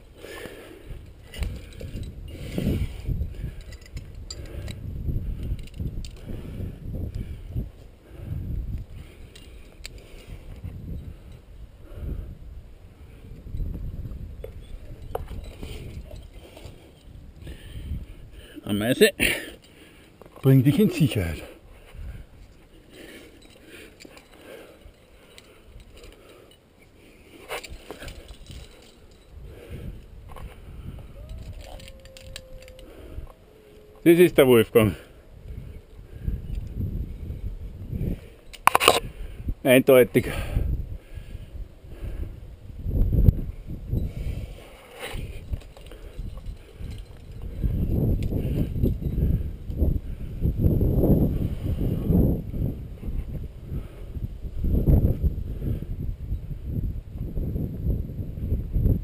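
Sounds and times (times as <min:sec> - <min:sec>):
climber scraping on rock: 0:00.4 - 0:04.7
climbing hardware clinking: 0:00.4 - 0:06.3, 0:09.1 - 0:11.5, 0:14.4 - 0:17.6, 0:22.0 - 0:35.0, 0:38.3 - 0:39.1, 0:44.0 - 0:49.8.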